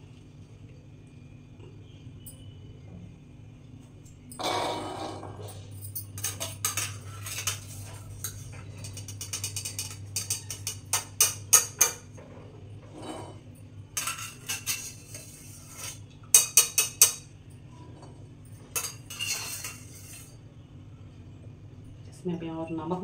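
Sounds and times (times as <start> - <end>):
metal strainer clinking on steel pot: 6.2 - 12.0, 14.0 - 17.3, 18.7 - 20.3.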